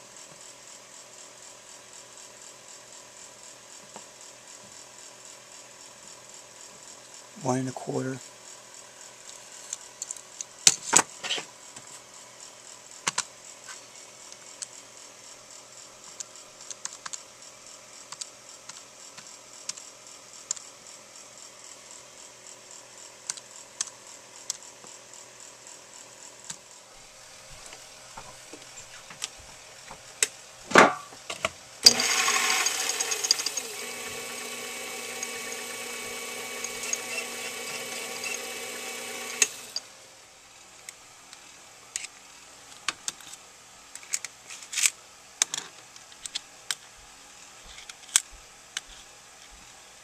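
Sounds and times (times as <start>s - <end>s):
faint steady hum: 11.5s - 50.0s
lathe motor running: 31.8s - 39.8s.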